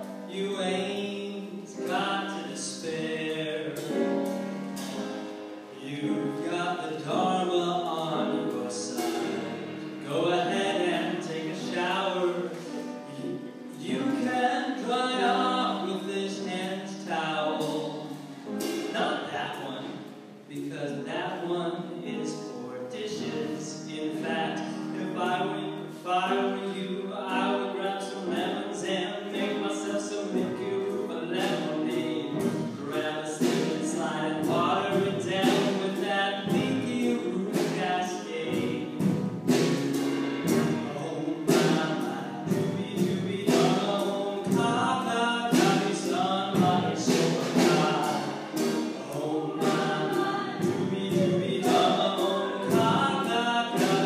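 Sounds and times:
choir singing: 46.5 - 54.0.

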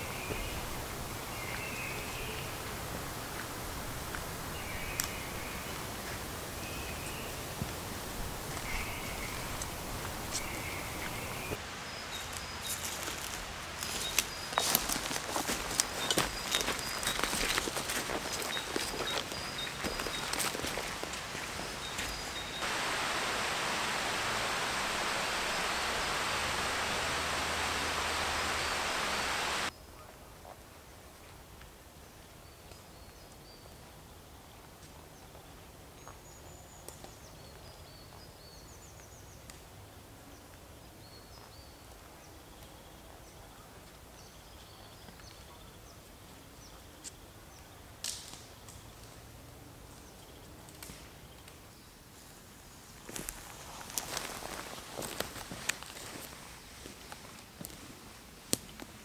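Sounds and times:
loud rushing noise: 22.6 - 29.7.

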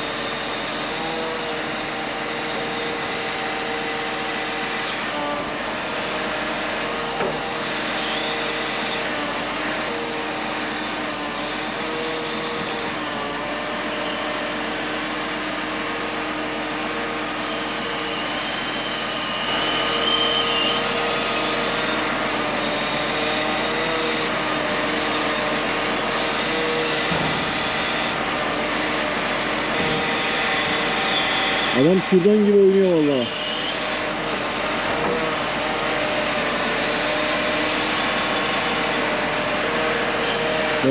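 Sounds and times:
log loader engine running: 0.0 - 40.9
high squeal: 17.5 - 24.2, 30.0 - 34.1, 40.2 - 40.9.

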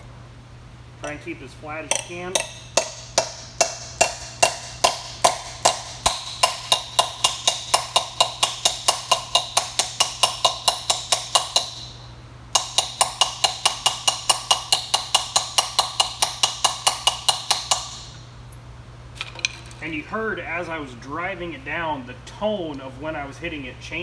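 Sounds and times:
small hammer tapping on steel: 1.9 - 18.2.

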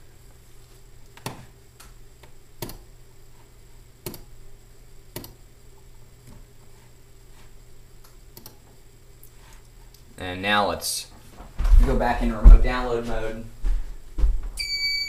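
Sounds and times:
steady low hum: 0.0 - 15.0
computer mouse clicking: 4.0 - 4.3, 5.2 - 5.4, 8.4 - 8.6.

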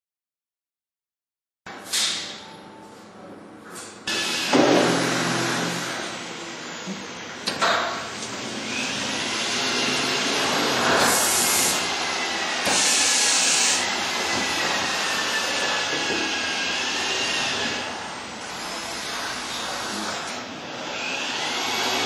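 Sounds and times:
compressed air blasts: 10.4 - 11.9, 12.5 - 13.9
packaging machine hissing: 10.8 - 11.9, 12.6 - 13.9.

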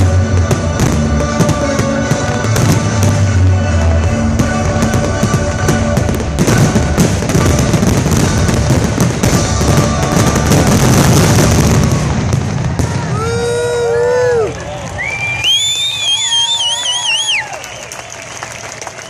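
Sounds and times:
show music: 0.0 - 15.1
fireworks bursting: 0.0 - 17.5
crowd whooping and cheering: 9.7 - 19.0.

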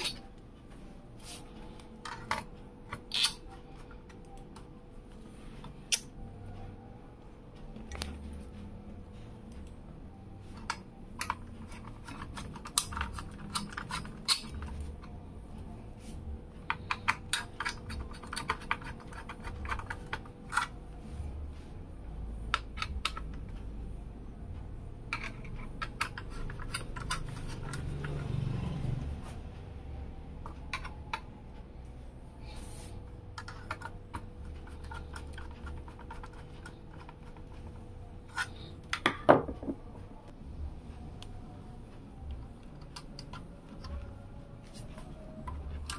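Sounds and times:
fingers clicking and tapping hardware: 10.5 - 15.2, 16.6 - 20.8.

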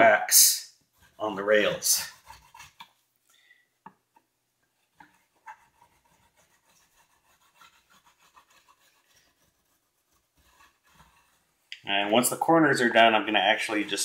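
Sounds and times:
candle rubbing on wood: 0.9 - 3.0, 4.8 - 11.6.

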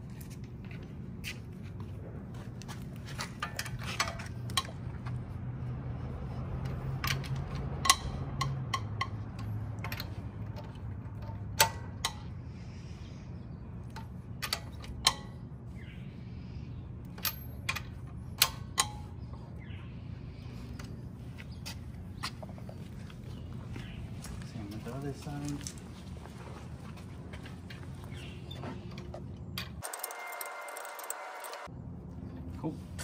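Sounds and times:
wrench clicking on lug nuts: 6.6 - 12.3.

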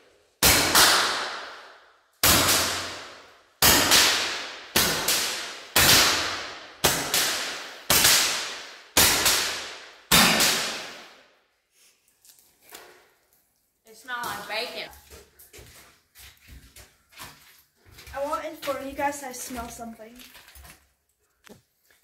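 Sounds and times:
roman candle shots echoing: 0.4 - 11.4.

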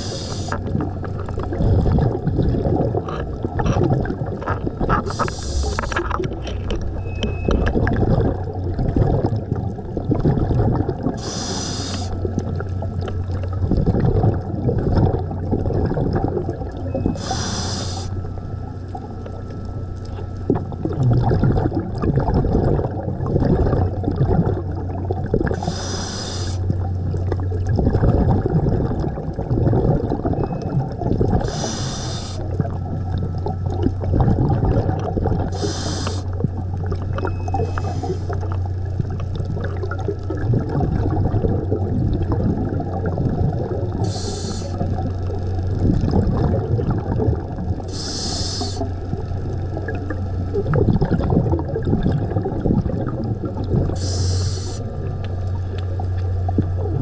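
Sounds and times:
hissing regulator inhalations: 0.0 - 0.6, 5.0 - 6.1, 11.2 - 12.2, 17.2 - 18.2, 25.6 - 26.6, 31.4 - 32.5, 35.5 - 36.3, 37.6 - 38.4, 44.0 - 44.9, 47.9 - 48.9, 54.0 - 54.9
bubbling exhalations: 0.0 - 12.6, 13.6 - 18.2, 20.5 - 32.8, 33.6 - 55.2
steady low hum: 0.0 - 57.0.

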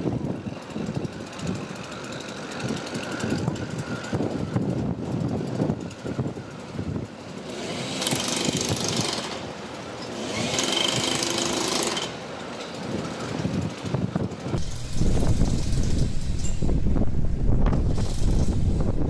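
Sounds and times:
power tool hissing: 14.6 - 16.8, 17.7 - 18.9.

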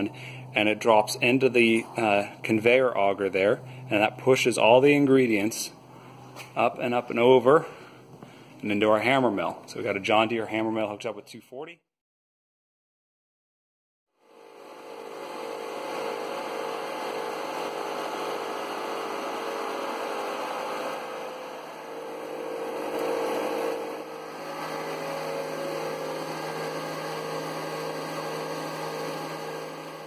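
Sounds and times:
hammer mill whirring: 14.2 - 30.0.

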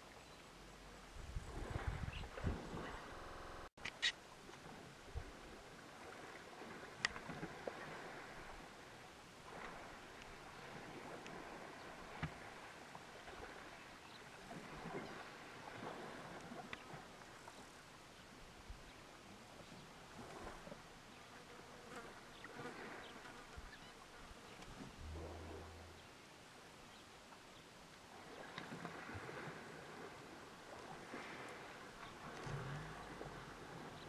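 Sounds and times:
outdoor background hiss: 0.0 - 10.6.

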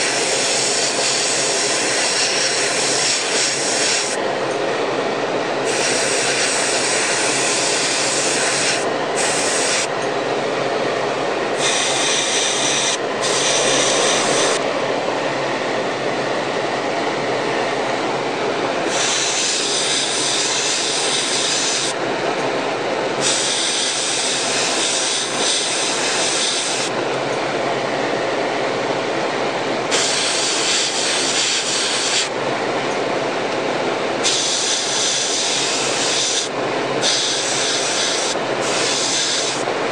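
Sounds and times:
exhaust fan humming: 0.0 - 39.9
airbrush spraying hiss: 11.6 - 14.6, 34.2 - 39.6.

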